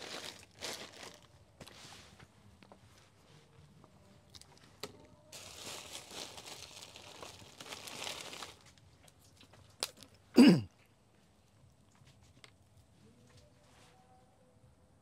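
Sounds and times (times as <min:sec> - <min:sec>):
plastic wrapping crinkling: 0:00.0 - 0:01.8, 0:04.4 - 0:10.1
person coughing: 0:10.4 - 0:10.7.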